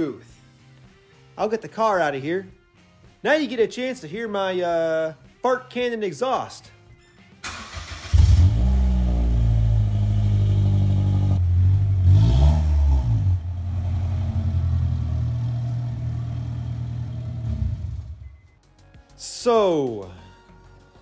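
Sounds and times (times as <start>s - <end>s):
car engine with loud exhaust: 8.1s - 18.4s.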